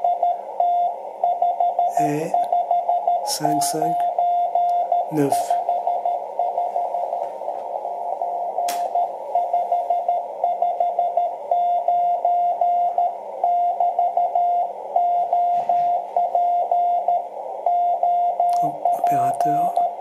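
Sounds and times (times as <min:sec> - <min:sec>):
morse code tone beeping: 0:00.0 - 0:20.0
radio hiss: 0:01.9 - 0:02.5, 0:03.2 - 0:04.2, 0:04.9 - 0:09.5, 0:18.6 - 0:20.0
sharp click: 0:08.7 - 0:09.0.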